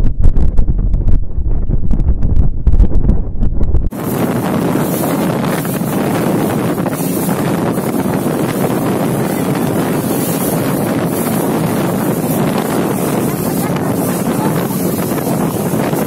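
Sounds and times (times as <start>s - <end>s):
wind blasting microphone: 0.0s - 16.0s
water rushing along boat hull: 3.9s - 16.0s.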